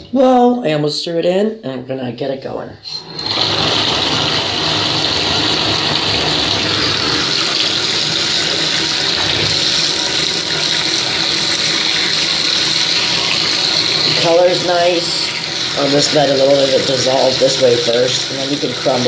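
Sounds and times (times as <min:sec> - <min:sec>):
water pouring into bathtub: 0:03.0 - 0:19.0.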